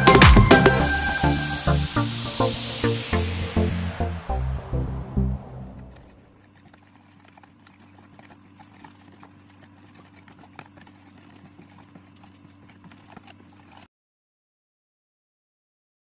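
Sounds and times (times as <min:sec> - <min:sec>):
low steady hum: 0:00.7 - 0:13.9
spoon stirring sauce in plastic tub: 0:06.4 - 0:13.9.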